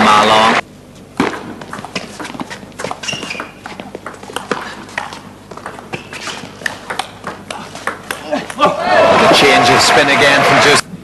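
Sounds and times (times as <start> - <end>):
table tennis ball hits: 1.2 - 8.6.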